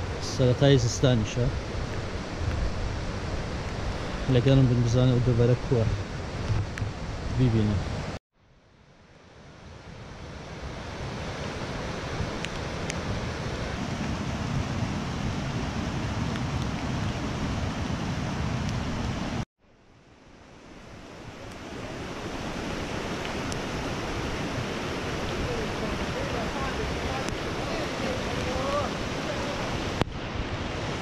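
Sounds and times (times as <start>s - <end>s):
stream rushing: 0.0s - 8.2s, 8.9s - 31.0s
wind buffeting microphone: 5.6s - 8.2s, 10.2s - 19.4s.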